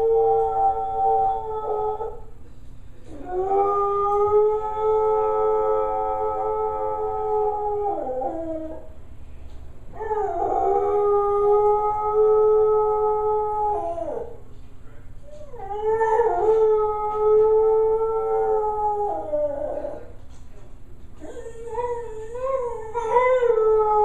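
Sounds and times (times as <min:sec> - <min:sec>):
dog howling: 0:00.0 - 0:02.3, 0:03.1 - 0:08.9, 0:09.9 - 0:14.4, 0:15.3 - 0:20.2, 0:21.2 - 0:24.0.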